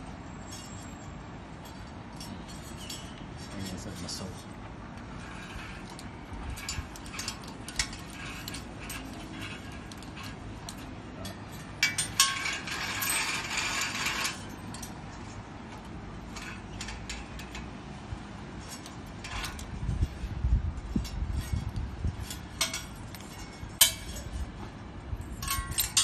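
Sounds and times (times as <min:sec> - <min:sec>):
rasping rattle: 0:05.0 - 0:15.0.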